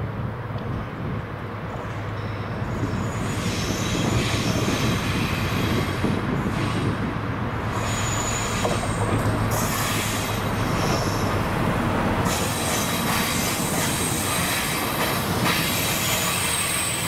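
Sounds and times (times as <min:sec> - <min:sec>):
diesel locomotive engines humming: 0:00.0 - 0:17.0
wheels rumbling on rail: 0:00.0 - 0:17.0
high-pitched wheel squeal: 0:02.2 - 0:07.0, 0:07.7 - 0:11.3.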